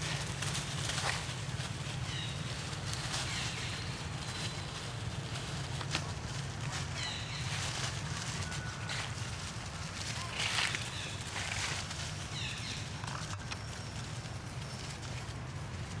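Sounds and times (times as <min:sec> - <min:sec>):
leaf crackles: 0:00.0 - 0:16.0
monkeys scuffling in dry leaves: 0:00.0 - 0:16.0.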